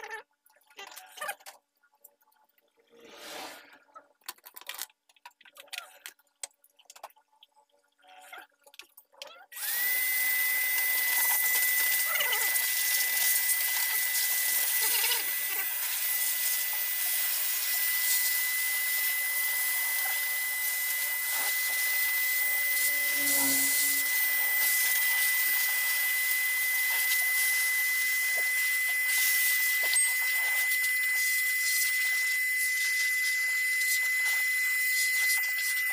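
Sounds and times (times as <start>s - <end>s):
electric air tool whining: 9.6s - 35.9s.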